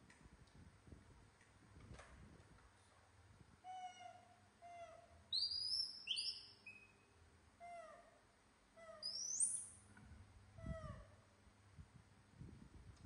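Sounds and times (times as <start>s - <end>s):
shrill monkey squeals: 3.7s - 6.9s, 8.8s - 9.7s.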